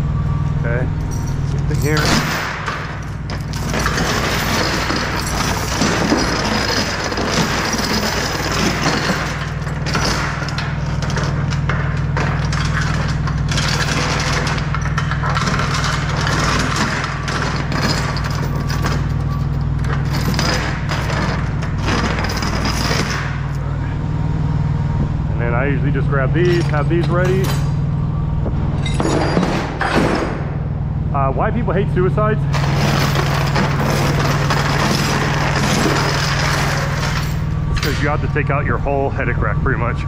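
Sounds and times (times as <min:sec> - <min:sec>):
steady low hum: 0:00.0 - 0:40.0
steel chain rattling and clinking: 0:01.0 - 0:23.6, 0:32.5 - 0:38.2.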